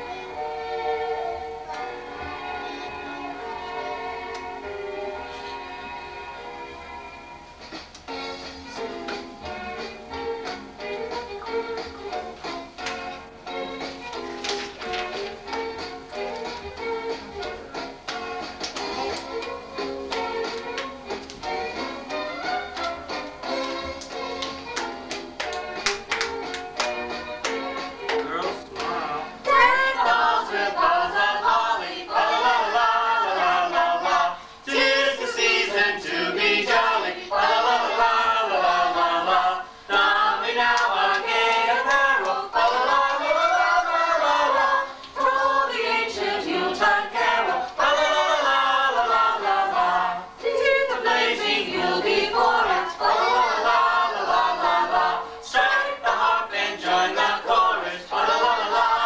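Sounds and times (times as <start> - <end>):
adults and children singing: 27.4 - 59.0
singers breathing: 34.3 - 34.7, 39.6 - 39.9, 44.8 - 45.2.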